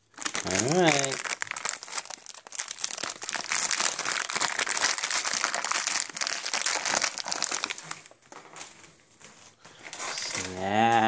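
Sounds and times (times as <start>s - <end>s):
treat bag crinkling: 0.0s - 8.8s, 9.8s - 11.0s.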